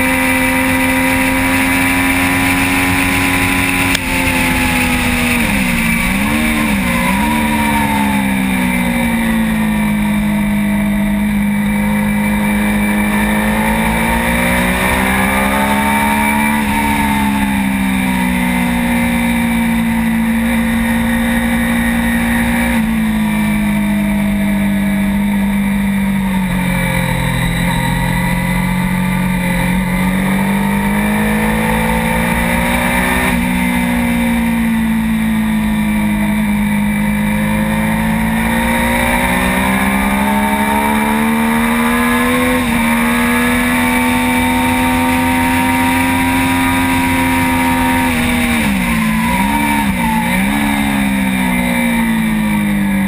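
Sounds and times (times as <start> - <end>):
motorcycle engine running hard: 0.0 - 53.0.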